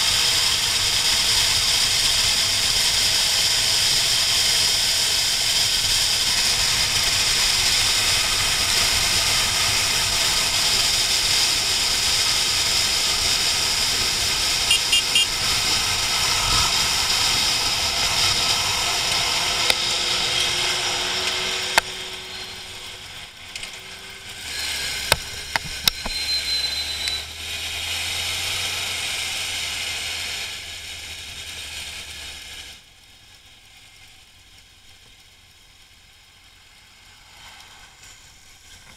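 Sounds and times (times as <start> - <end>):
motorcycle engine: 0.0 - 38.9
wind rush: 6.4 - 23.1.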